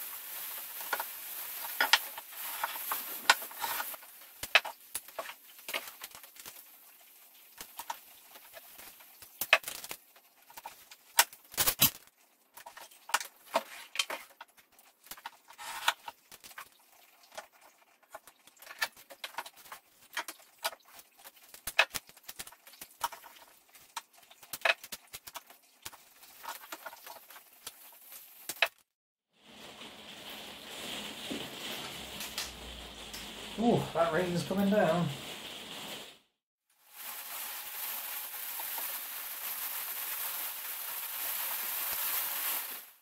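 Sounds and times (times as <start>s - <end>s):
small clicks and crackles: 0.2s - 36.2s
paper and tape rustling: 0.4s - 16.8s, 18.5s - 36.2s.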